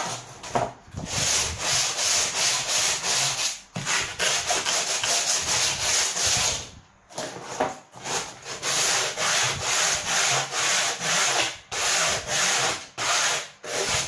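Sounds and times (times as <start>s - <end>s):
sandpaper scratching on cardboard edge: 1.1s - 6.7s, 8.0s - 14.0s.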